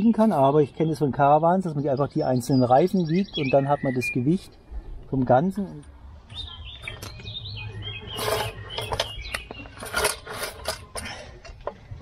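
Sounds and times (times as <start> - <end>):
scale scraping over gravelly soil: 8.1 - 9.1.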